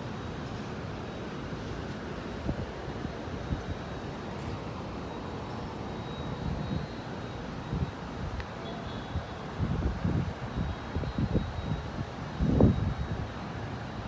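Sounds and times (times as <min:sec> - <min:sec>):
distant traffic: 0:00.0 - 0:14.0
rain: 0:00.0 - 0:14.0
wind buffeting microphone: 0:09.2 - 0:13.3.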